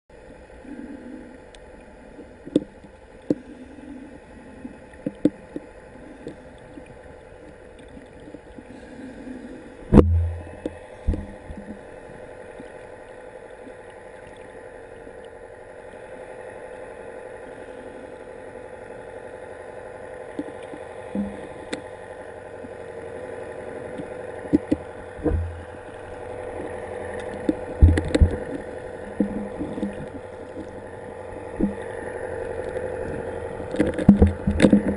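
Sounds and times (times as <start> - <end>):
boat engine hum underwater: 0.1 - 34.9
heavy low thump: 9.9 - 11.5
sharp clicks and knocks: 9.9 - 11.8, 24.0 - 25.7, 27.2 - 28.6, 33.7 - 34.9.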